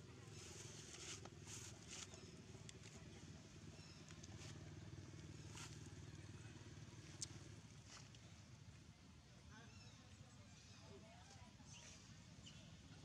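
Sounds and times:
soft rustles: 0:00.2 - 0:03.0.

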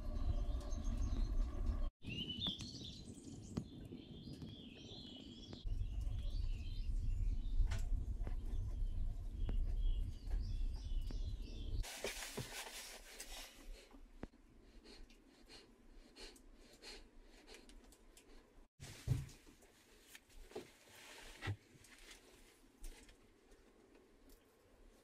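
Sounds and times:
low rumble: 0:00.0 - 0:01.9, 0:05.6 - 0:11.8
small birds chirping: 0:00.0 - 0:11.8.

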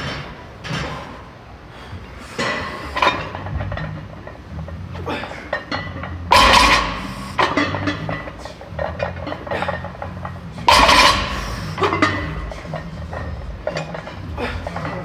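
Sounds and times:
plates rattling and ringing: 0:02.4 - 0:04.8, 0:05.5 - 0:15.0
barbell clanking on floor: 0:05.5 - 0:14.2.

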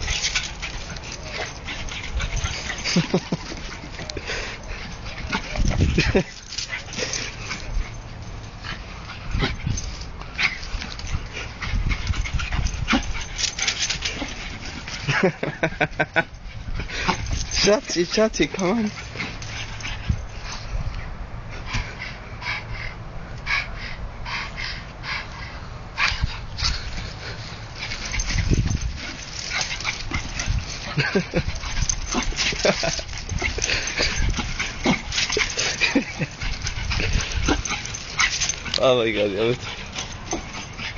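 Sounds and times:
dog whining and yelping: 0:27.8 - 0:38.8, 0:39.6 - 0:40.9.

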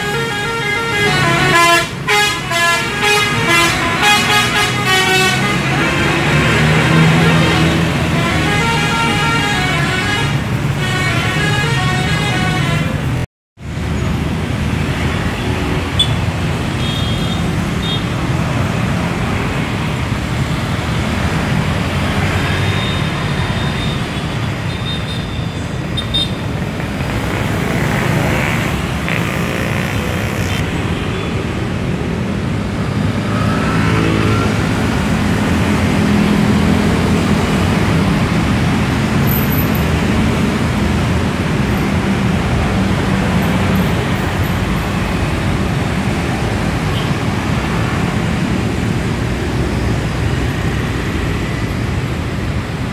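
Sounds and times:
multi-tone bus horn tune: 0:00.0 - 0:13.2, 0:26.0 - 0:31.3
scooters and cars passing: 0:00.0 - 0:52.9.

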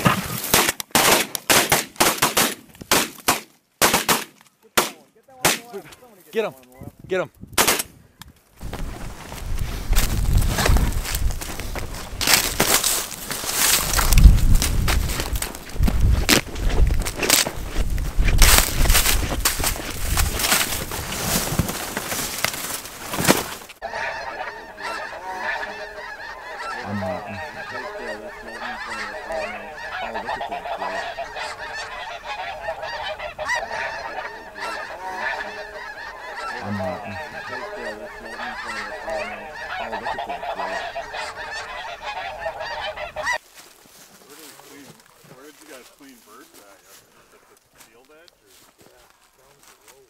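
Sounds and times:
wind noise: 0:06.8 - 0:22.0
footsteps through dry stubble: 0:08.6 - 0:23.8, 0:39.6 - 0:50.0
flock of geese honking: 0:10.0 - 0:15.7, 0:18.4 - 0:50.0.

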